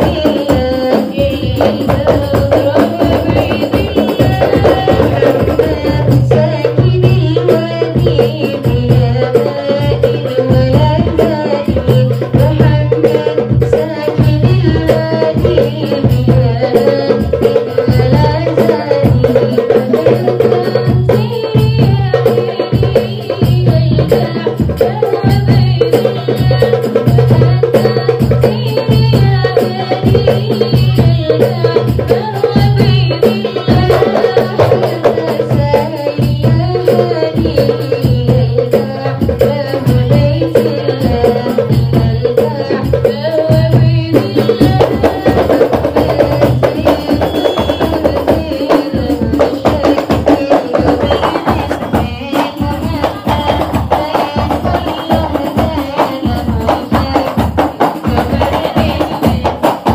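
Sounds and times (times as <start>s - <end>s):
frame drum percussion: 0.0s - 59.9s
voices singing devotional song: 0.0s - 59.9s.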